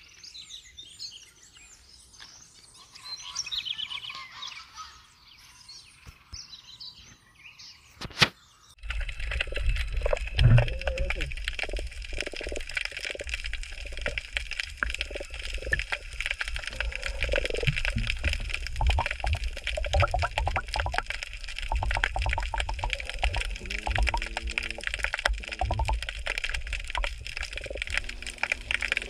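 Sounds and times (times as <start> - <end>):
low rumble of moving water: 8.8 - 29.0
underwater crackle of clicks: 8.8 - 29.0
low humming tone: 21.7 - 29.0.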